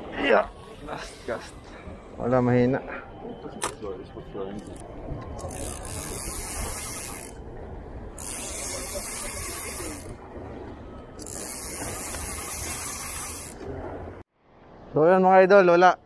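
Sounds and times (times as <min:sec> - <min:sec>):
fishing reel whirring: 0:05.4 - 0:07.4, 0:08.1 - 0:10.2, 0:11.2 - 0:13.6.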